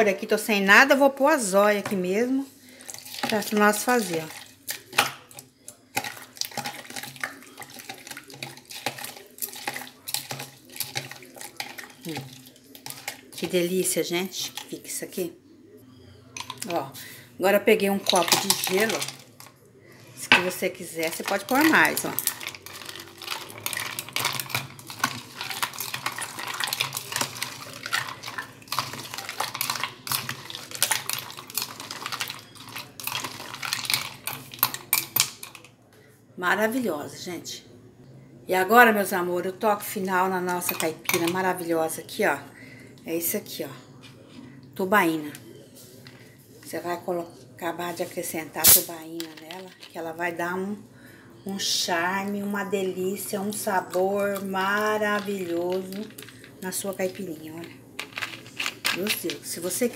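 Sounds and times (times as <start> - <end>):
liquid sloshing in cup: 2.7 - 13.6, 17.9 - 19.6, 20.8 - 35.7, 54.2 - 59.4.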